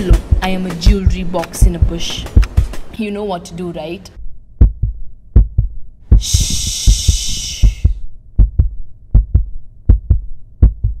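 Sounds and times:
heartbeat thumps: 0.0 - 2.9, 4.6 - 11.0
hushing shh: 6.2 - 8.0.

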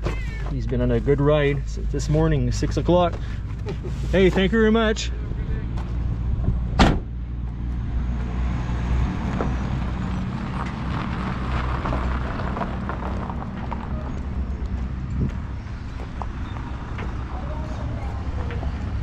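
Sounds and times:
low vehicle rumble: 0.0 - 19.0
car door slamming: 6.7 - 7.2.

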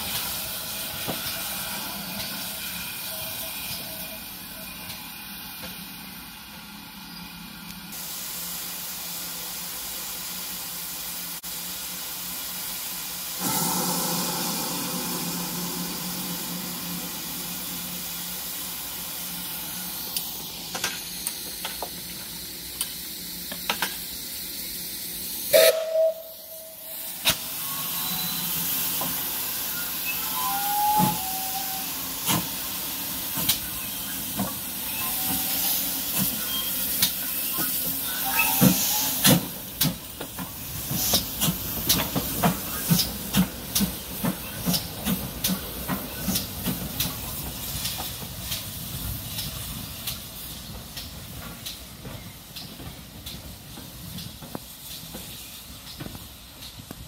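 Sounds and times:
steam locomotive hissing: 0.0 - 57.0
locomotive whistle toot: 25.5 - 28.6, 29.7 - 32.0, 37.4 - 39.4.

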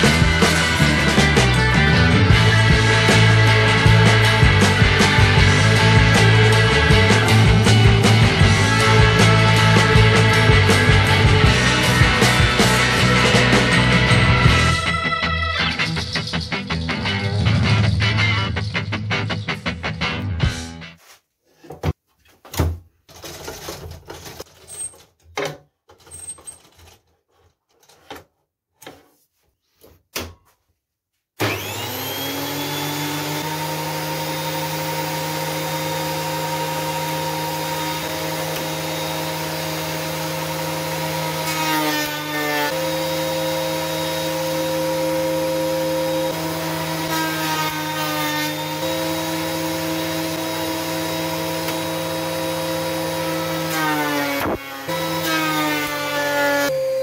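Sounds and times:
thickness planer whining: 0.0 - 15.0, 31.4 - 57.0.

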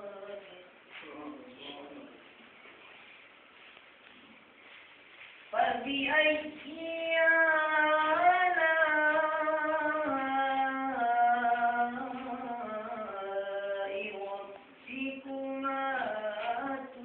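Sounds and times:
melodic recitation by one voice: 0.0 - 1.9, 5.6 - 17.0
faint hiss: 0.0 - 7.2.

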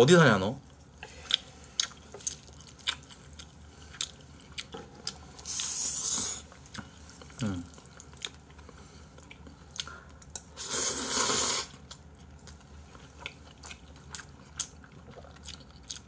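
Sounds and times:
man slurping noodles: 10.6 - 11.7.

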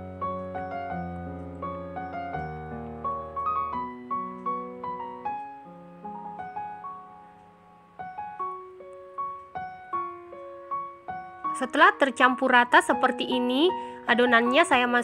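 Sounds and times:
piano music: 0.0 - 15.0.

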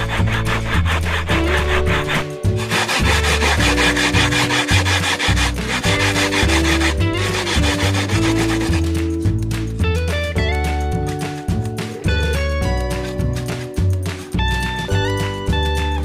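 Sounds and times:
coconut rasping on grater: 0.0 - 9.1
background music with bass: 0.0 - 16.0.

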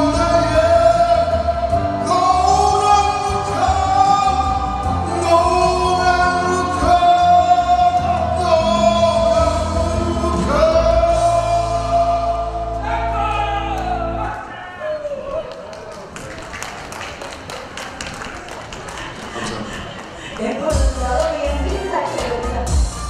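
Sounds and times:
man singing into microphone: 0.0 - 14.4.

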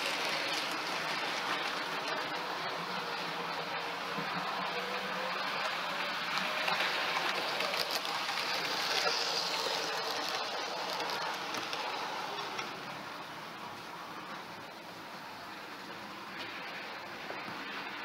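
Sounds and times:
model train motor whirring: 0.0 - 13.0
wheels rattling along rails: 0.0 - 18.0.

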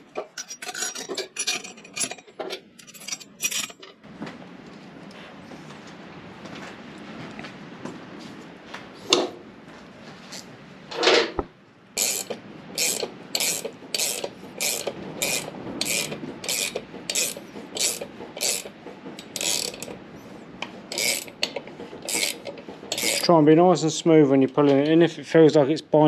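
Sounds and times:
ratchet spanner clicking: 12.0 - 20.0, 20.9 - 23.3.

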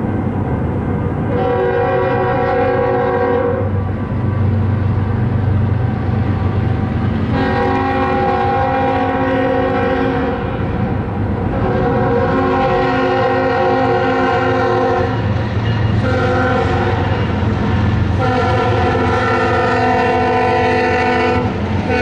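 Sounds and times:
locomotive air horn: 1.3 - 3.8, 7.3 - 10.5, 11.5 - 15.2, 16.0 - 17.2, 18.2 - 22.0.

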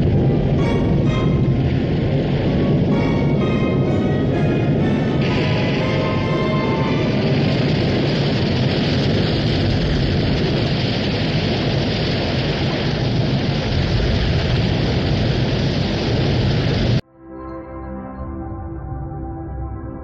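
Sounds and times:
floodwater rushing through tunnel: 0.0 - 17.0
soft sustained music tones: 0.3 - 7.5, 17.1 - 20.0.

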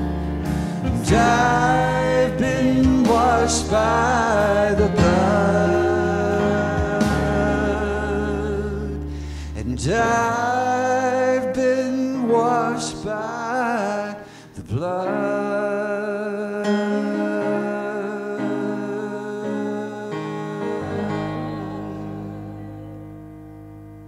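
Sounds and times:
band chord on keyboard and guitars: 0.0 - 11.4, 18.4 - 24.0
man singing with vibrato: 0.8 - 22.7.

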